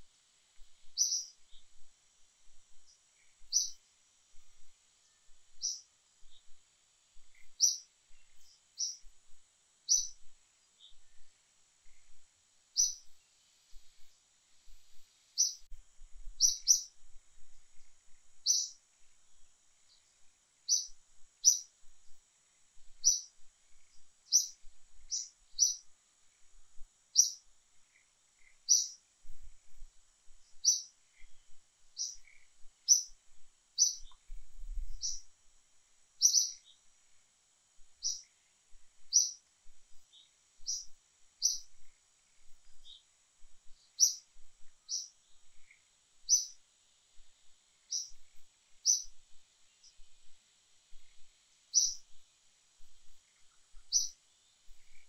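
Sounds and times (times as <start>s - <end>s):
faint high-pitched hum: 0.0s - 55.0s
bird chirping: 0.6s - 6.6s, 7.2s - 14.1s, 14.7s - 15.7s, 16.3s - 17.0s, 17.7s - 18.8s, 19.8s - 21.7s, 22.9s - 26.5s, 27.1s - 29.0s, 30.4s - 33.2s, 33.8s - 35.3s, 36.2s - 36.9s, 38.0s - 38.4s, 39.0s - 46.6s, 47.8s - 52.2s, 52.8s - 55.0s.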